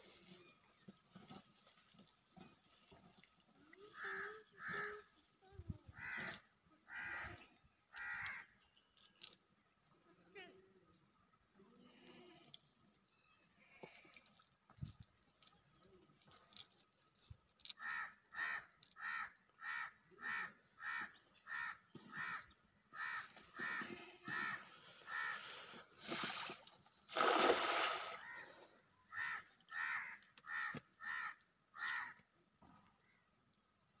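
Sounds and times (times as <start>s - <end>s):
crow cawing: 4.0s - 5.0s, 6.0s - 8.5s, 17.7s - 25.6s, 28.2s - 32.2s
cast net splashing into water: 26.0s - 28.3s.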